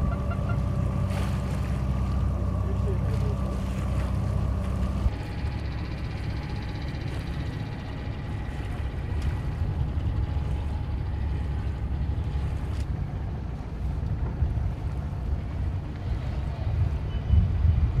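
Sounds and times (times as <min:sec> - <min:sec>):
boat engine rumble: 0:00.0 - 0:18.0
wind buffeting microphone: 0:06.3 - 0:18.0.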